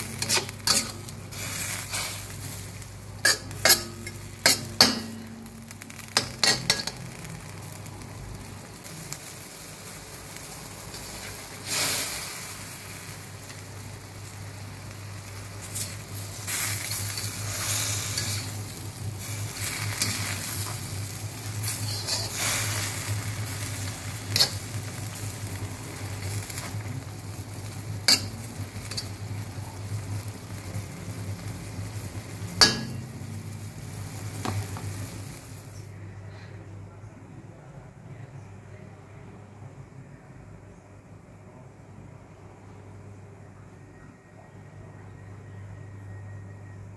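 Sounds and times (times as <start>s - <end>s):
food sizzling in a wok: 0.0s - 35.9s
low steady hum: 0.0s - 46.9s
spatula clanking against wok: 3.2s - 5.3s, 32.6s - 33.2s.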